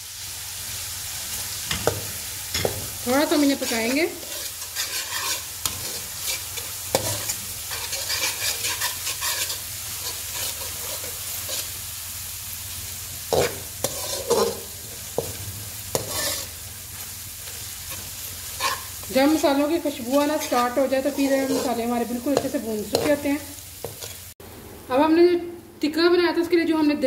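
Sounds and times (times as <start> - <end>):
food sizzling in oil: 0.0 - 25.0
metal spoon scraping pan: 2.6 - 11.8, 13.3 - 16.6, 17.4 - 24.2.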